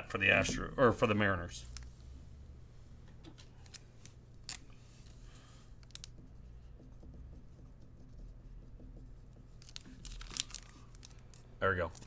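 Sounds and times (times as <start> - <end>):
card and plastic sleeve handling: 3.4 - 5.2, 5.8 - 6.1, 9.6 - 12.0.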